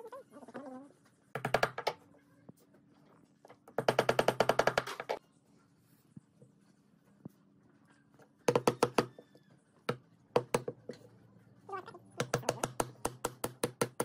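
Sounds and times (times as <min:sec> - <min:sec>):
hammer tapping wooden dowels: 0:01.4 - 0:02.0, 0:03.7 - 0:05.2, 0:08.5 - 0:09.2, 0:09.9 - 0:11.0, 0:12.2 - 0:14.0.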